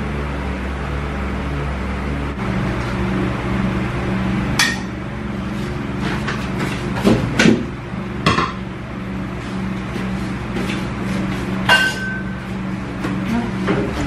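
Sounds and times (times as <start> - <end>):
ceramic dishware clinking: 11.7 - 12.4.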